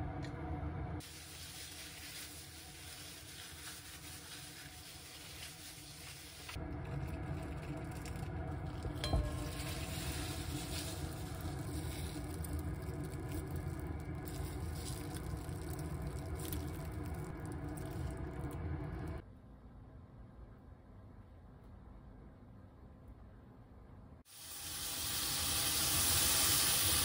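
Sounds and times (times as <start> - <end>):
plastic bag being handled: 1.0 - 18.3.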